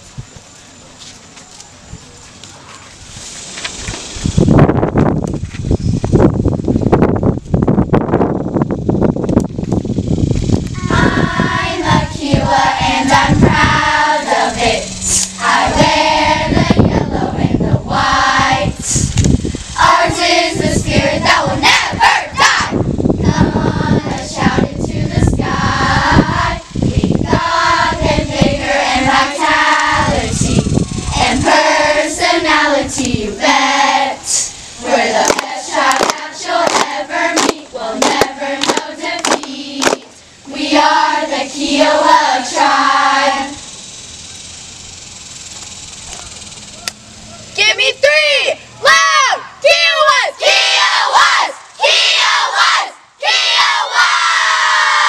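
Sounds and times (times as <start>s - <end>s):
girls singing in unison: 10.8s - 19.1s, 19.8s - 43.7s
rhythmic hand clapping: 35.0s - 40.2s.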